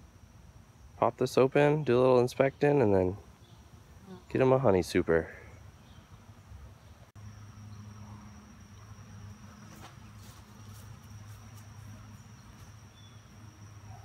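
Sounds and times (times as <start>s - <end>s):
high insect trill: 7.2s - 14.0s
honeybees buzzing: 7.2s - 14.0s
faint rustles: 9.6s - 12.8s.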